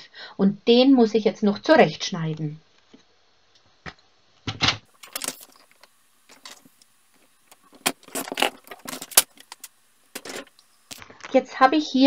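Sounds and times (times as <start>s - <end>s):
paper trimmer cutting card: 4.9s - 11.0s.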